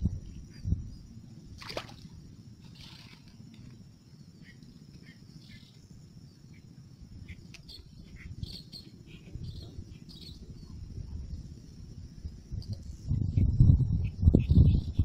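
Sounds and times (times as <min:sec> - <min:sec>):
insects trilling: 0:00.0 - 0:15.0
bird chirps: 0:06.4 - 0:10.8.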